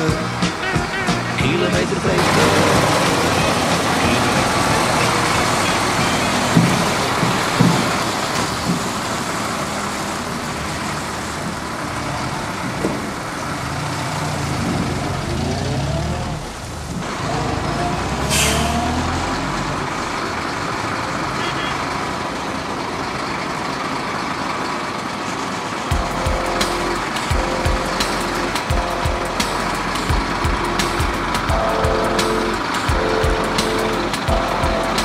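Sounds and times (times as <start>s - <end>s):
diesel truck engine running: 0.0s - 35.0s
air brakes hissing: 18.2s - 18.9s.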